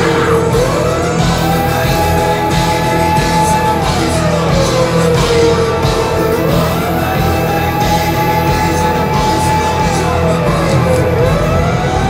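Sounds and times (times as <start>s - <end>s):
live rock band playing: 0.0s - 12.0s.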